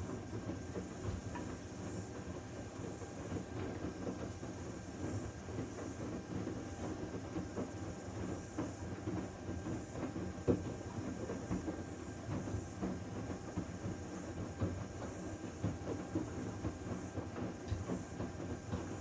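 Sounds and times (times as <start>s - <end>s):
washing machine drum rumbling: 1.0s - 1.6s.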